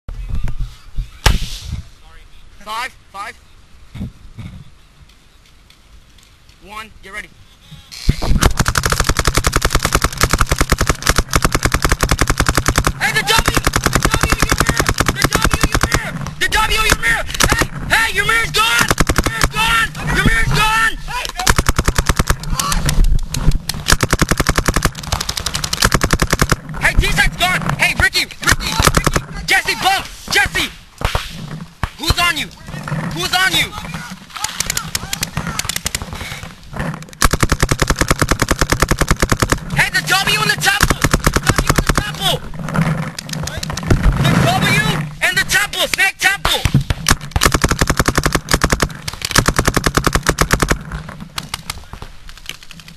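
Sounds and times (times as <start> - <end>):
paintball markers firing: 8.1 - 17.8, 18.6 - 19.8, 21.2 - 27.1, 28.4 - 29.4, 34.4 - 42.3, 46.4 - 52.9
players shouting: 12.9 - 21.6, 22.4 - 23.0, 26.8 - 30.8.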